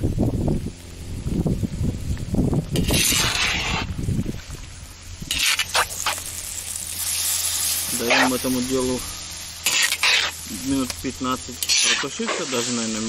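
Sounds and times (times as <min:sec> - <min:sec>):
wind on microphone: 0:00.0 - 0:05.5
food sizzling in a pot: 0:00.0 - 0:13.0.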